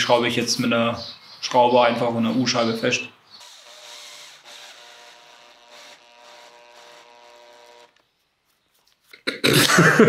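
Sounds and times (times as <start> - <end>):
drill driving a screw: 3.4 - 8.0.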